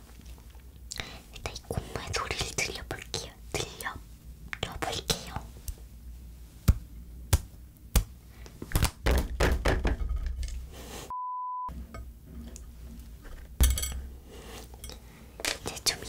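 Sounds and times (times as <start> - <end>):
knocks of ball handling: 8.7 - 10.1
short high bleep: 11.1 - 11.7.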